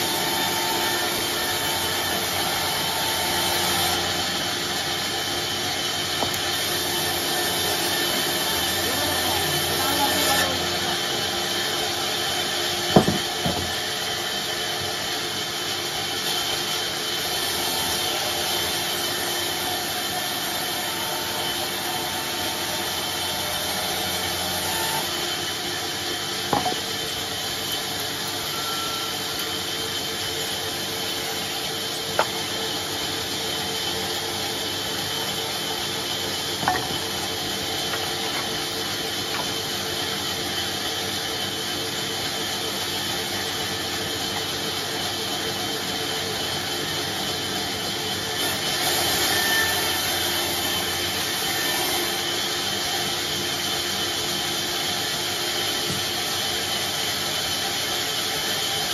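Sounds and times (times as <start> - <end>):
band saw cutting log: 0.0 - 58.9
sharp knocks: 13.0 - 13.7.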